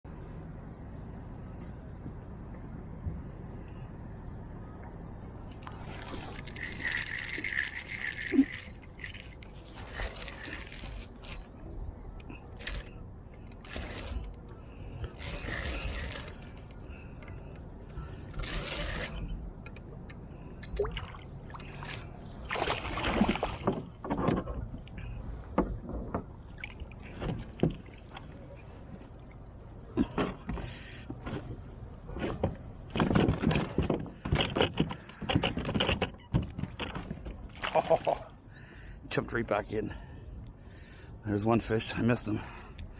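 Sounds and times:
fishing reel cranking: 0:06.2 - 0:11.5, 0:13.6 - 0:14.3, 0:15.2 - 0:16.4, 0:18.4 - 0:19.2.

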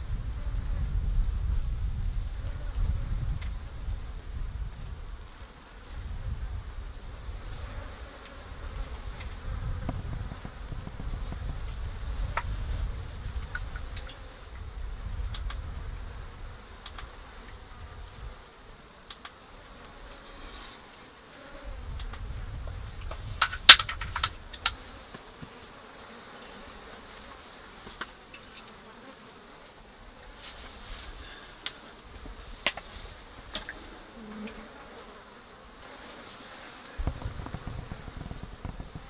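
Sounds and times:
flies buzzing: 0:00.0 - 0:39.0
sharp clicks: 0:16.8 - 0:17.1.

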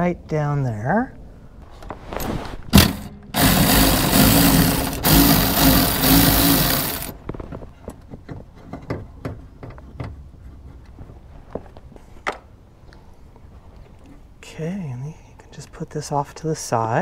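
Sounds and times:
electric ratchet running: 0:02.8 - 0:07.2.

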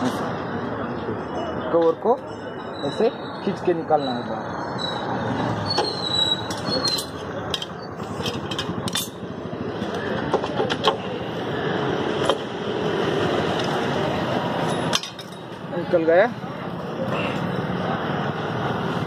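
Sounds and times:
metal cover clicking and knocking: 0:07.5 - 0:09.2, 0:09.9 - 0:11.0.

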